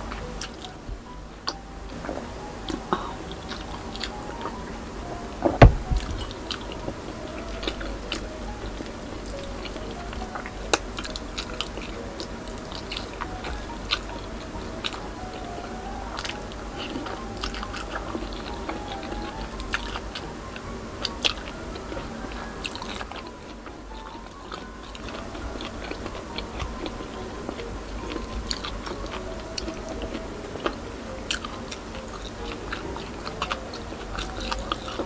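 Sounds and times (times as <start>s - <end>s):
faint background music: 0.0s - 35.0s
person chewing and lip smacking: 1.4s - 35.0s
loud knock: 5.5s - 6.2s.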